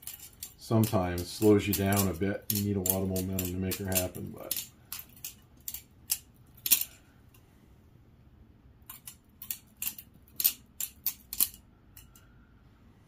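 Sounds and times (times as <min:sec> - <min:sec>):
butterfly knife clacking: 0:00.0 - 0:07.0, 0:08.9 - 0:12.3.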